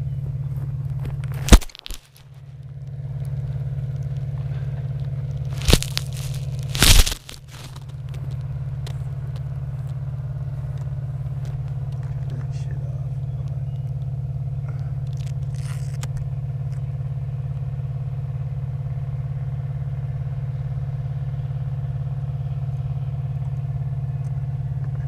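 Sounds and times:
faint rustles: 4.4s - 12.5s.

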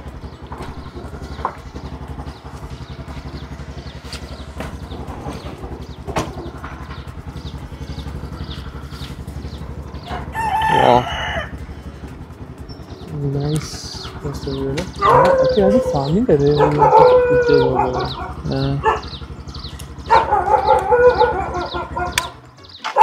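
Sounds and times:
motor throbbing: 0.0s - 22.8s
small birds chirping: 0.0s - 23.0s
rooster crowing: 10.1s - 11.7s, 16.6s - 18.2s, 20.2s - 22.1s.

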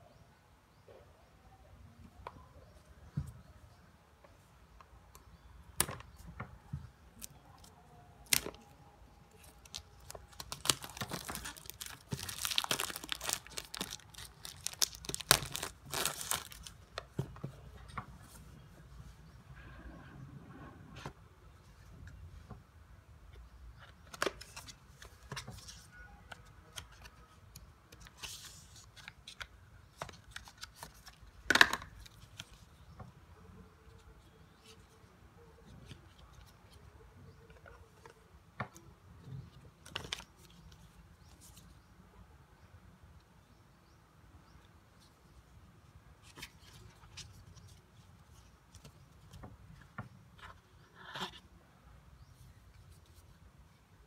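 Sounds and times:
card and paper rustling: 9.3s - 17.2s.

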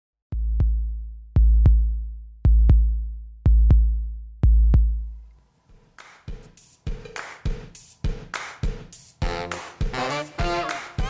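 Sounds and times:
electronic bass drum beats: 0.3s - 5.2s, 6.3s - 11.0s.

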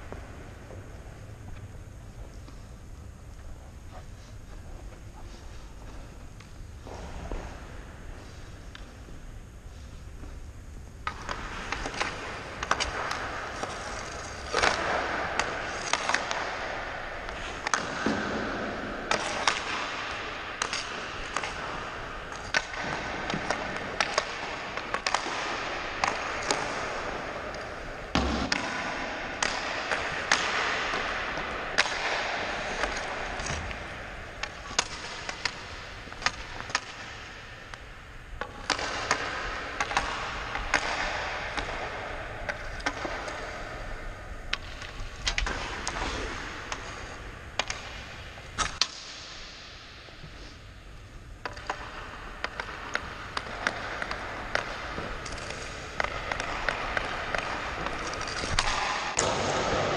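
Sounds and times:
hockey sticks and pucks clacking: 0.0s - 59.9s
skate blades scraping ice: 11.1s - 37.9s, 38.5s - 49.4s, 51.4s - 59.9s.

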